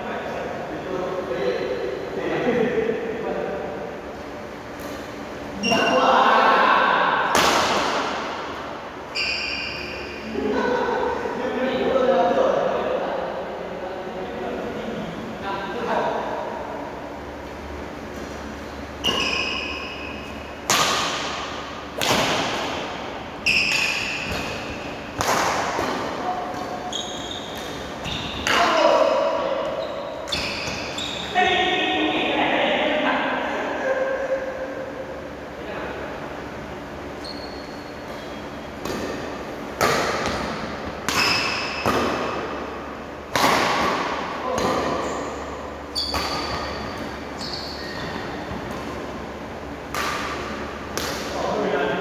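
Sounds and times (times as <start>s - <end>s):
rackets hitting shuttlecock: 7.3s - 8.6s, 18.3s - 31.0s, 38.0s - 47.4s, 48.0s - 51.4s.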